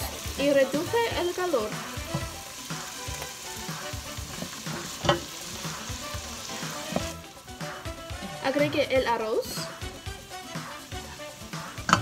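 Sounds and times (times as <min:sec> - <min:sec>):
beans sizzling in a pot: 0:00.0 - 0:12.0
wooden spoon scraping a pot: 0:04.0 - 0:05.4, 0:06.6 - 0:07.2.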